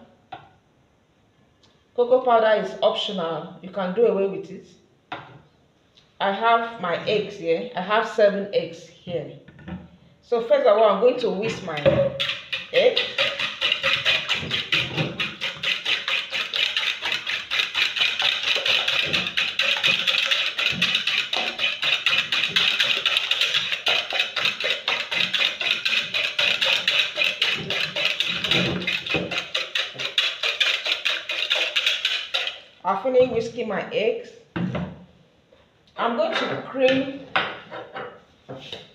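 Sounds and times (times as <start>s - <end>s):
fork beating eggs in bowl: 11.4s - 32.7s.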